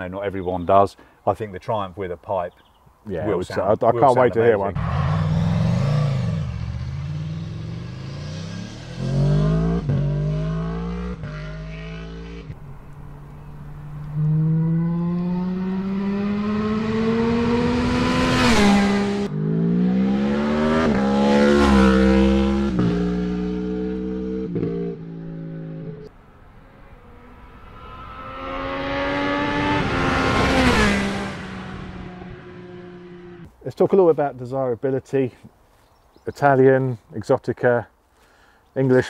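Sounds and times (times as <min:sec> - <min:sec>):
motorcycle accelerating: 0:04.7 - 0:33.5
motorcycle engine revving: 0:04.8 - 0:33.5.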